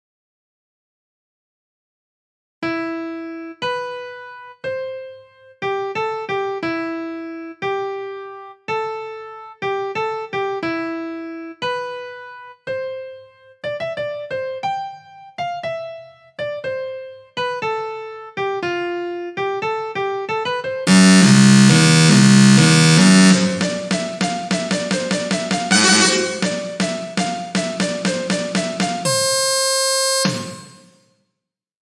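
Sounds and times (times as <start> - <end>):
synthesized piano melody: 2.6 - 30.9
dense loud buzz of notes: 20.9 - 27.3.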